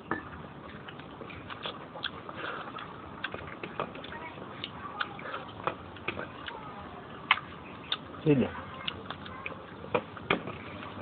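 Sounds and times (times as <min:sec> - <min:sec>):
mouth chewing with wet smacks: 0:00.6 - 0:10.6.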